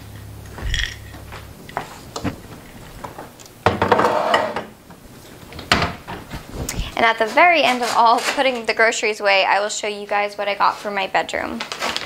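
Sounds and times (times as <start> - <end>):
low steady hum: 0.0 - 10.6
rustling: 6.1 - 8.6.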